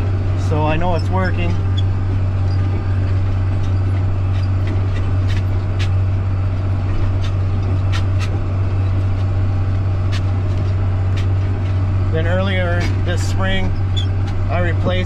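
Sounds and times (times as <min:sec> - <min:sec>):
tractor engine droning: 0:00.0 - 0:15.0.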